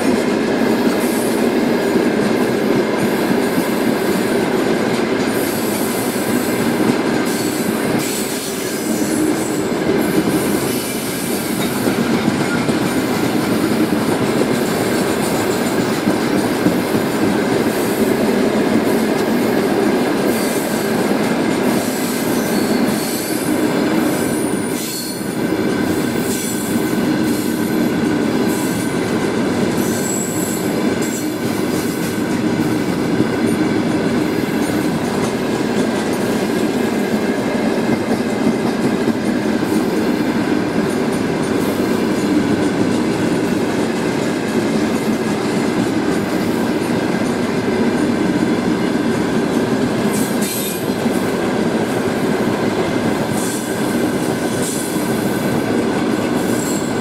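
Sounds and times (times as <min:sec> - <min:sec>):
train wheels rolling on rails: 0:00.0 - 0:57.0
high-pitched wheel squeals: 0:22.3 - 0:23.5, 0:24.3 - 0:25.4.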